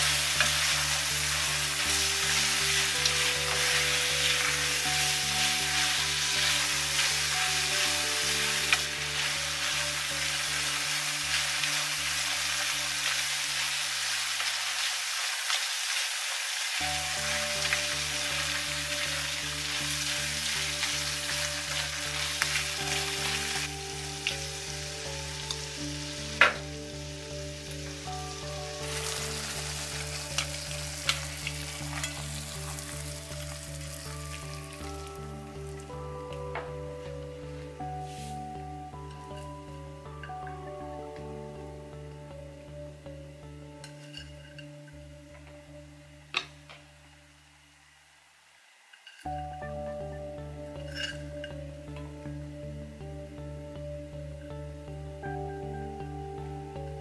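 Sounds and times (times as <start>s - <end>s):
tofu sizzling in a pan: 0.0s - 40.4s, 46.4s - 51.9s
spatula scraping a pan: 50.8s - 51.6s.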